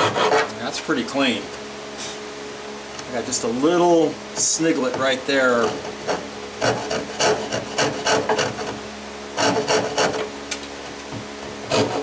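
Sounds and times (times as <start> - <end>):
hand file scraping wood: 0.0 - 0.6, 4.8 - 8.8, 9.4 - 10.3, 11.6 - 12.0.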